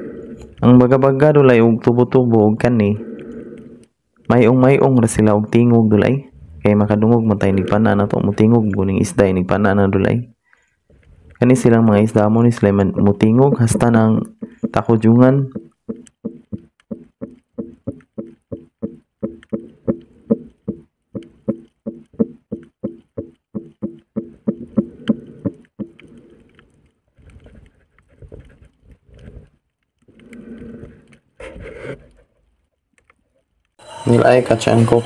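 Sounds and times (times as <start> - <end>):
fish making low pulses underwater: 0.0 - 0.6, 2.8 - 4.0, 6.3 - 8.7, 15.4 - 27.5.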